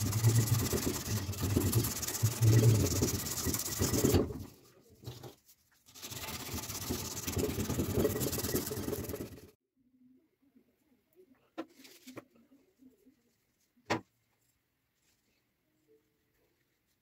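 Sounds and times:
sandpaper rasping on wood: 0.0s - 4.4s, 5.9s - 9.5s.

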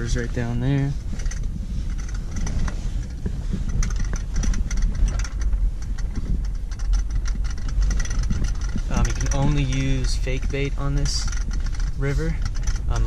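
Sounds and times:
rattles and knocks from bumps: 0.0s - 13.0s
vehicle rumbling on dirt road: 0.0s - 13.0s.

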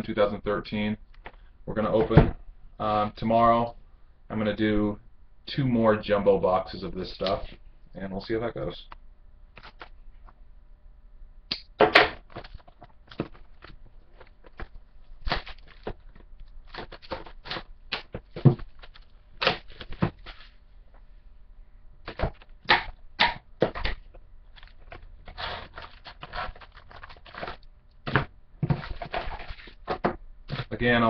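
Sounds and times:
wrapper crackling and crinkling: 12.3s - 20.6s
packaging tearing: 14.5s - 20.5s, 24.6s - 27.7s.

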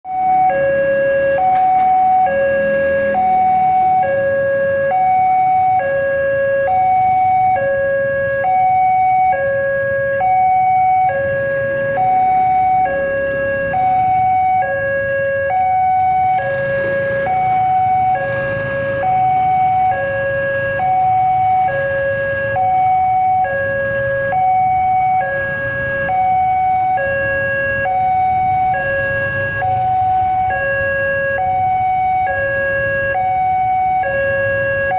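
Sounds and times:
two-tone crossing alarm: 0.1s - 34.9s.

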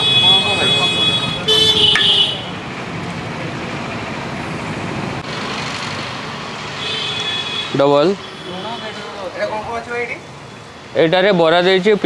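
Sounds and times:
street traffic: 0.0s - 12.0s
high steady tone: 0.2s - 2.6s.

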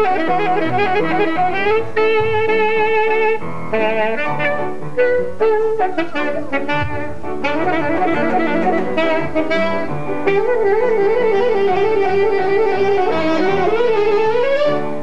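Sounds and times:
melody over accompaniment: 6.5s - 14.3s.

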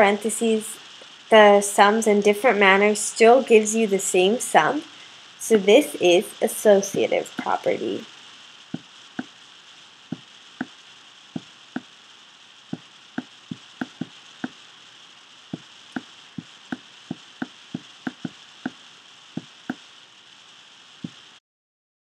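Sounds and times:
steady hiss: 0.0s - 21.4s
taps on tablet screen: 11.4s - 11.9s, 13.2s - 14.6s, 15.6s - 16.1s, 16.7s - 18.8s.

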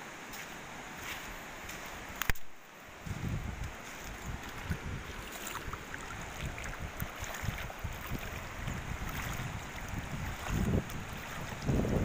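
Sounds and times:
river water over stones: 0.0s - 12.0s
wind buffeting microphone: 3.0s - 12.0s.

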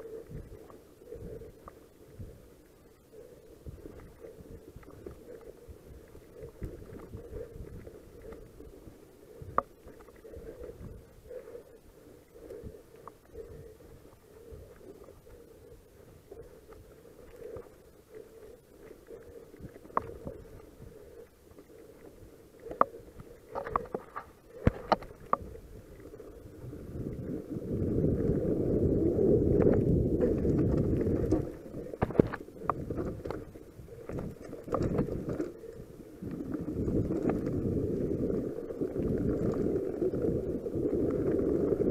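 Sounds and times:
rumble of tyres and wind: 24.6s - 41.9s.

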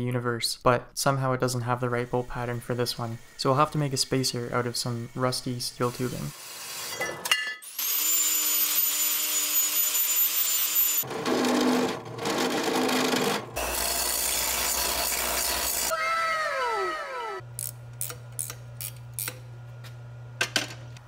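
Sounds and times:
metal saw whining: 13.2s - 17.4s
motor winding down: 14.8s - 17.8s.

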